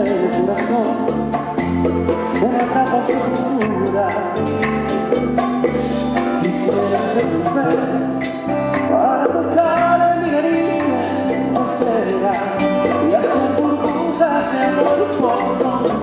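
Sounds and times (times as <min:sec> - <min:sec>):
person singing: 0:00.0 - 0:01.4, 0:02.1 - 0:04.8, 0:05.7 - 0:16.0
live latin band playing: 0:00.0 - 0:16.0.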